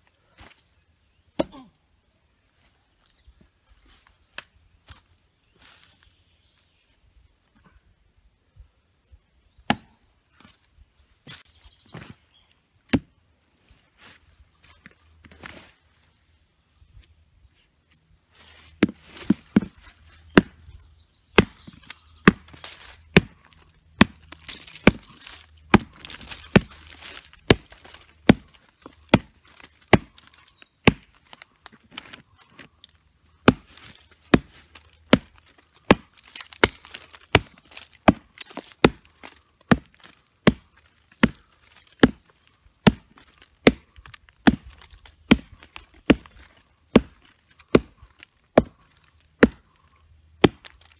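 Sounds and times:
knife chopping wood: 0:01.4 - 0:01.7, 0:09.6 - 0:10.0, 0:12.9 - 0:13.1, 0:18.8 - 0:20.7, 0:21.3 - 0:23.4, 0:24.0 - 0:32.7, 0:33.4 - 0:49.7, 0:50.4 - 0:50.9.

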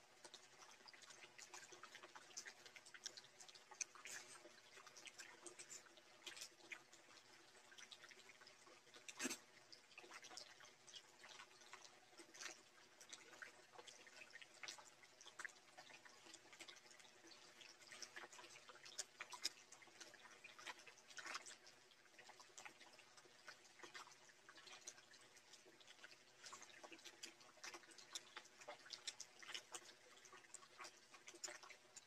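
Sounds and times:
wet eating clicks and smacks: 0:01.0 - 0:07.1.

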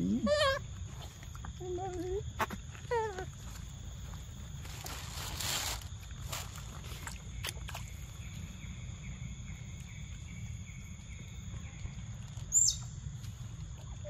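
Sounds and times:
forest insects droning: 0:00.0 - 0:14.0.

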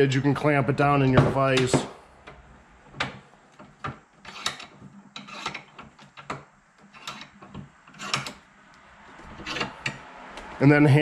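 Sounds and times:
bench vise scraping and clicking: 0:01.5 - 0:08.5, 0:09.1 - 0:10.6.

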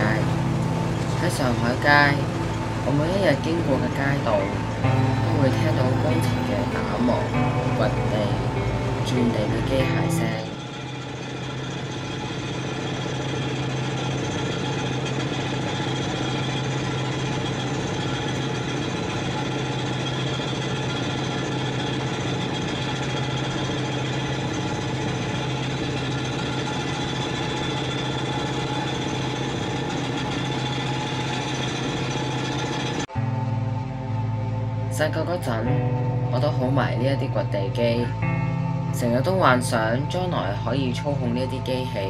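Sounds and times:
machinery engine drone: 0:00.0 - 0:42.0
fast mechanical rattle: 0:09.2 - 0:33.1.

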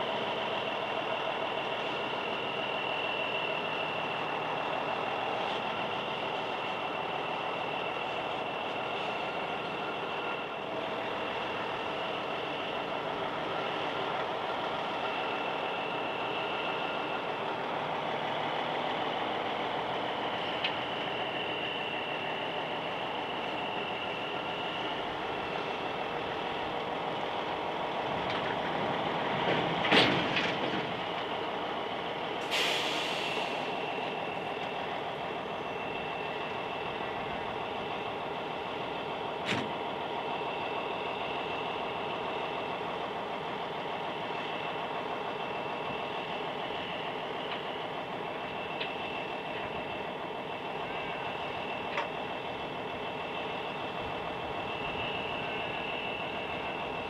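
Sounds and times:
diesel engine idling: 0:00.0 - 0:57.0
air brakes hiss: 0:32.4 - 0:34.4.

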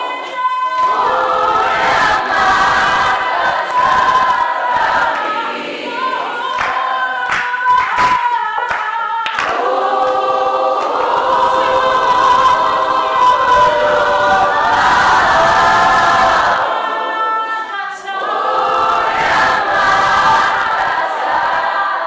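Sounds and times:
choir singing a cappella: 0:00.0 - 0:22.0
sharp hand claps: 0:06.5 - 0:11.9.

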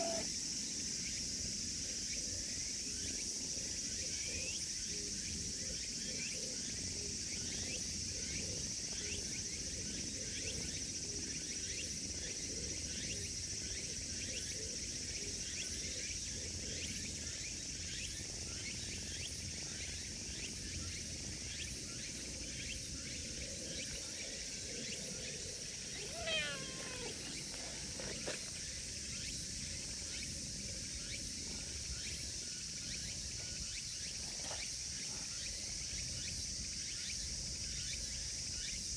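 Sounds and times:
cat meowing: 0:00.0 - 0:00.3, 0:26.0 - 0:27.3
insect chorus: 0:00.0 - 0:38.9.

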